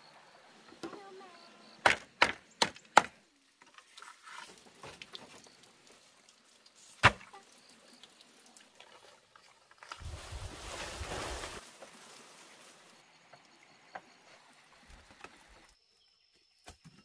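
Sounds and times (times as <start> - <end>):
chopping into wood: 1.8 - 3.2, 7.0 - 7.3.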